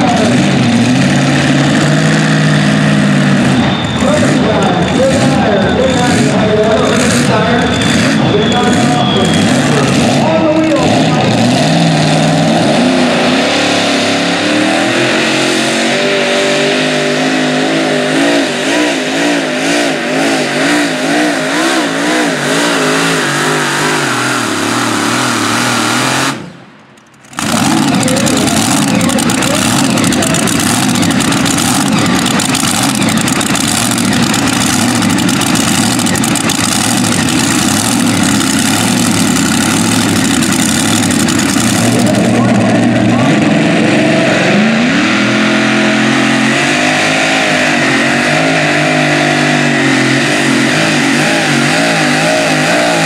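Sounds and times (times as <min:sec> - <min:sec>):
pulling tractor engines under load: 0:26.8 - 0:42.7.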